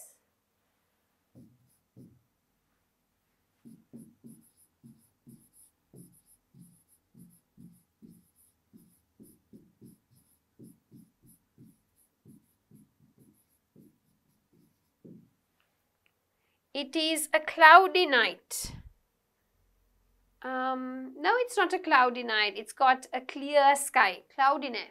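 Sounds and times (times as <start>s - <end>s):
pen scratching on board: 1.4s - 2.2s, 3.6s - 15.3s.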